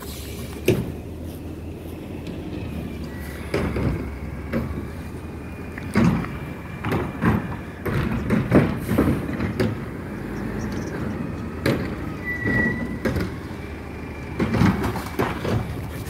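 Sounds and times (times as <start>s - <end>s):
garbage truck engine rumble: 0.0s - 16.0s
metal clunks and thumps: 3.4s - 10.0s, 10.7s - 13.6s, 14.2s - 16.0s
short high squeal: 12.2s - 13.0s.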